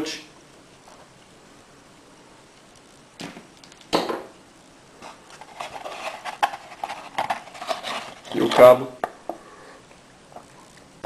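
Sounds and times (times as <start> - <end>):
cardboard scraping and rustling: 5.0 - 8.8.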